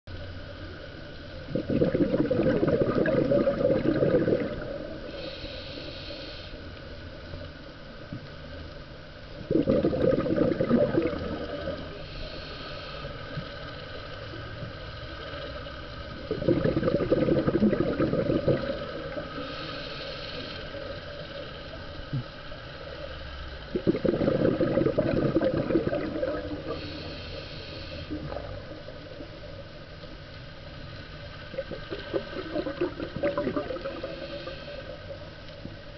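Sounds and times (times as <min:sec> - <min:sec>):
exhaled bubbles gurgling: 0:01.4 - 0:05.4, 0:09.4 - 0:12.5, 0:14.6 - 0:23.0, 0:23.7 - 0:30.0, 0:30.6 - 0:35.8
regulator inhale hiss: 0:04.5 - 0:07.0, 0:11.4 - 0:14.2, 0:18.3 - 0:23.0, 0:26.4 - 0:30.8, 0:33.4 - 0:35.4.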